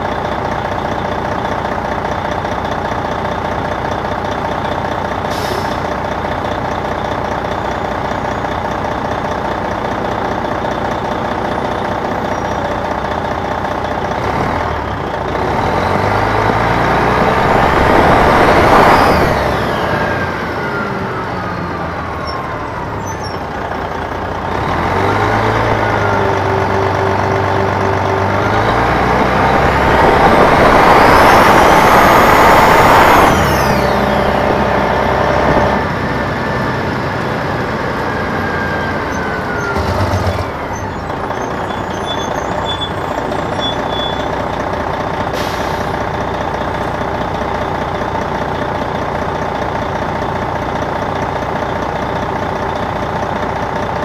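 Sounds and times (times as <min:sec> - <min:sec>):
bus engine running: 0:00.0 - 0:54.0.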